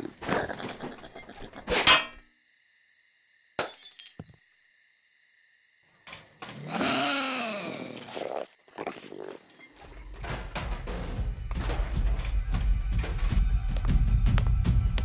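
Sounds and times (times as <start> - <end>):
glass shattering: 3.6 - 4.3
possums screeching: 6.6 - 10.0.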